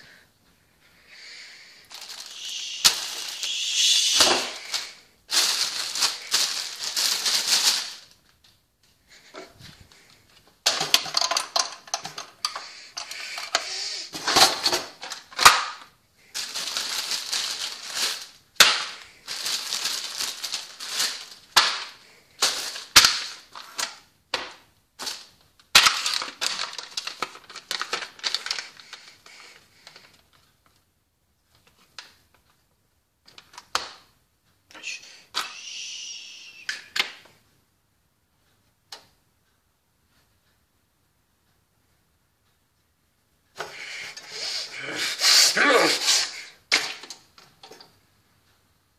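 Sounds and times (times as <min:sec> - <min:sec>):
plastic packaging crinkling: 0:01.8 - 0:08.3, 0:10.7 - 0:24.0, 0:25.0 - 0:30.5.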